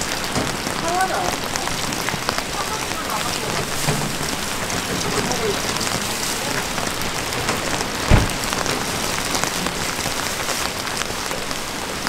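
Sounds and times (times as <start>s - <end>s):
heavy rain falling: 0.0s - 12.0s
dull thump: 7.5s - 8.9s.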